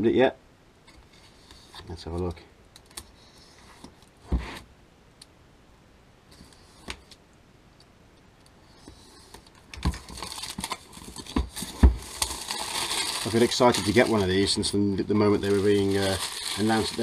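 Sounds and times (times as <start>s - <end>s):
knife scraping plastic wrap: 9.4s - 17.0s
plastic wrap crackling: 9.5s - 17.0s.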